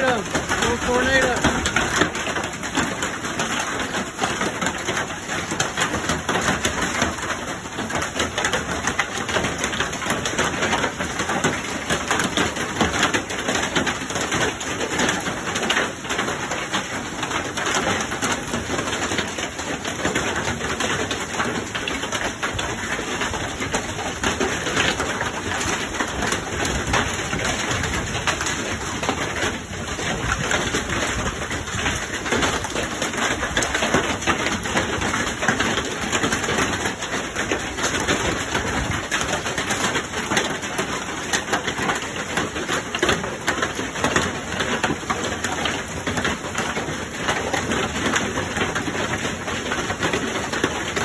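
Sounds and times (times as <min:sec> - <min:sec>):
heavy rain and hail pelting: 0:00.0 - 0:51.0.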